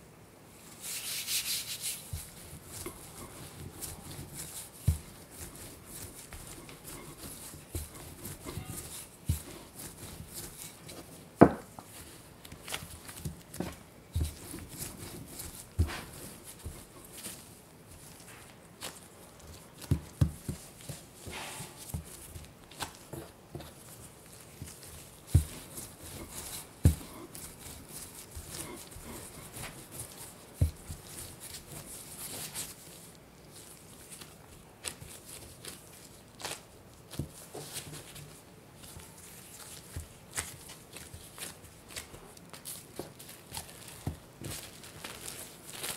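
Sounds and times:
dough rubbing by hand: 0:00.6 - 0:45.9
rolling pin rolling dough: 0:00.7 - 0:45.9
rolling pin knocking on board: 0:11.4 - 0:11.8.

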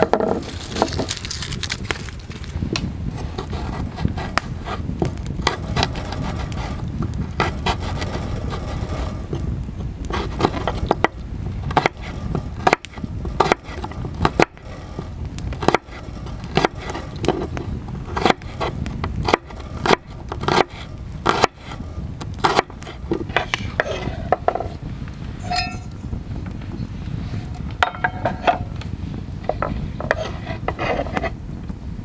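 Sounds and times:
low rumble: 0:00.0 - 0:32.0
short metallic ring: 0:25.4 - 0:25.9.

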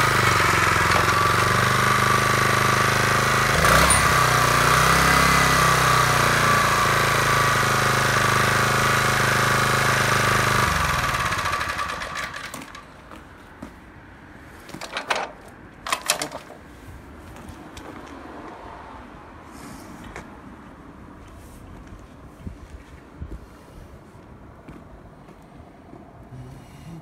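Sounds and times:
small petrol engine running: 0:00.0 - 0:12.9.

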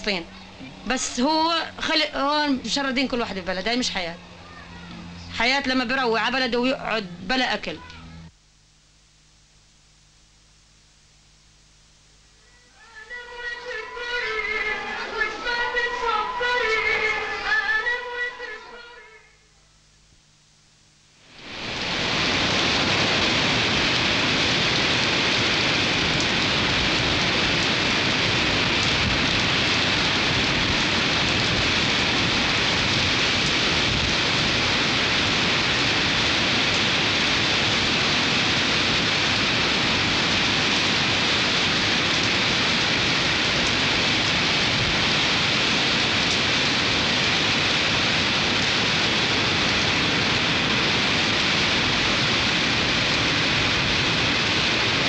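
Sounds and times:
stormy sea rushing: 0:21.3 - 0:55.0.

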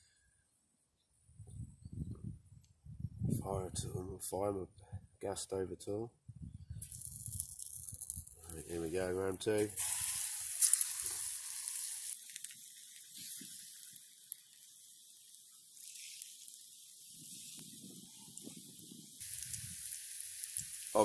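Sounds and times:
fish sizzling in hot oil: 0:06.8 - 0:21.0.

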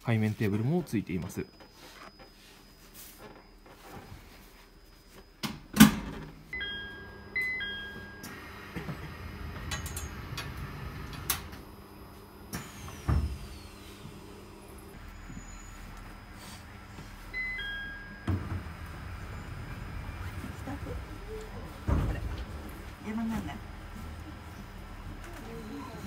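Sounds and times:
low rumble of train equipment: 0:06.6 - 0:26.0.

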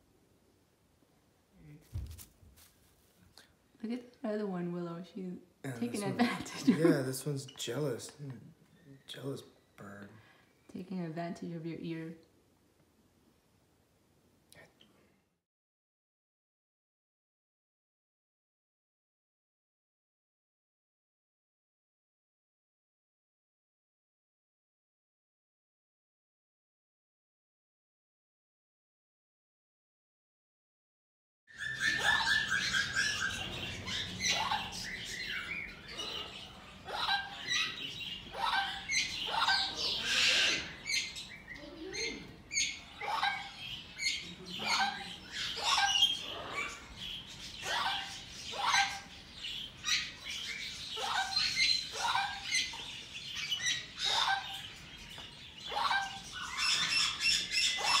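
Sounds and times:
parrot chirping and chattering: 0:31.5 - 0:58.0.

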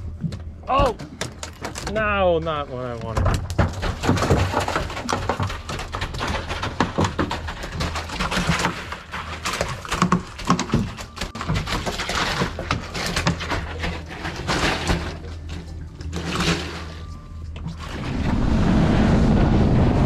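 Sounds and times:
knocks and clatter on boat: 0:00.0 - 0:20.0
wind and water rushing: 0:17.8 - 0:20.0.

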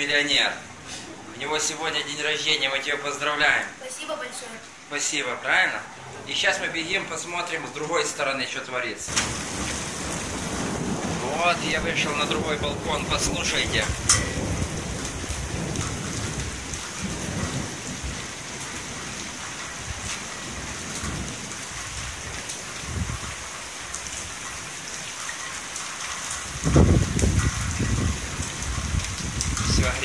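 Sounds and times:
heavy rain pouring: 0:00.0 - 0:30.0
thunder rumbling: 0:05.4 - 0:07.8, 0:09.1 - 0:23.5, 0:26.5 - 0:30.0.

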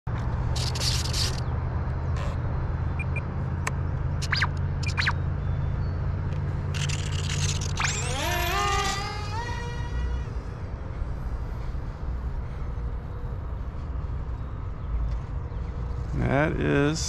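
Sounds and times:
steady low hum: 0:00.1 - 0:17.0
handling scrapes and clicks: 0:00.6 - 0:01.4
electric motor and propeller whine: 0:06.5 - 0:11.1.

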